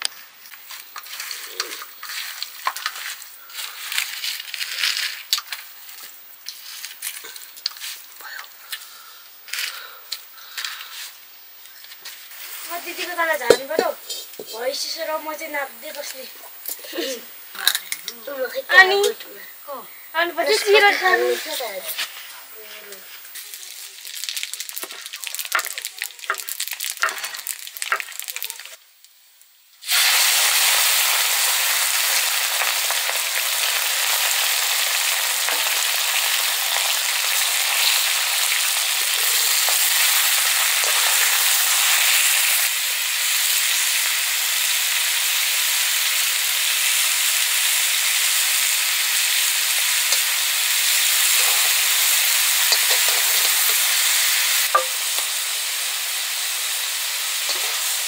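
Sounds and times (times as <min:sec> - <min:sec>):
food sizzling in hot oil: 0:00.0 - 0:58.0.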